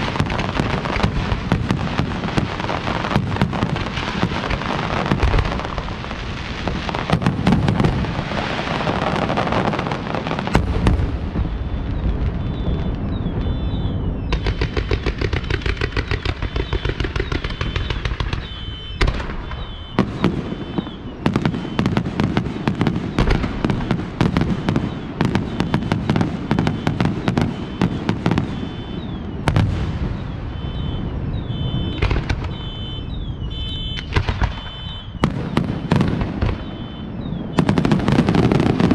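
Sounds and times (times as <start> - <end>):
firework shell bursts and crackle: 0.0 - 30.7, 31.7 - 32.8, 33.5 - 38.9
rapid sharp firework bangs: 0.0 - 38.9.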